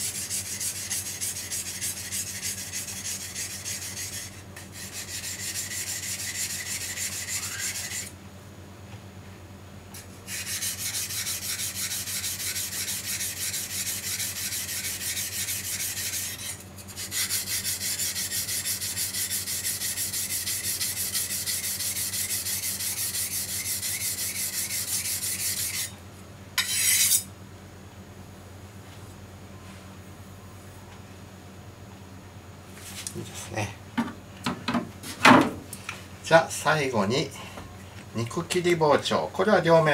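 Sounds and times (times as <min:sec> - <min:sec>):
knife scraping on whetstone: 0:00.0 - 0:08.1, 0:10.0 - 0:26.0, 0:26.6 - 0:27.3.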